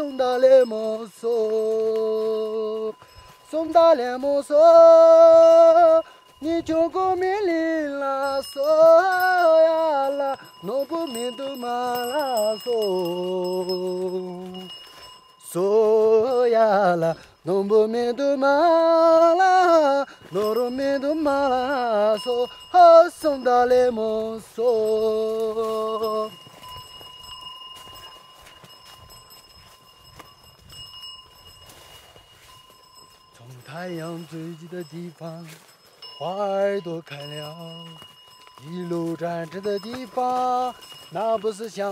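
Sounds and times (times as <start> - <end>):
person singing slow melody: 0.0 - 14.8.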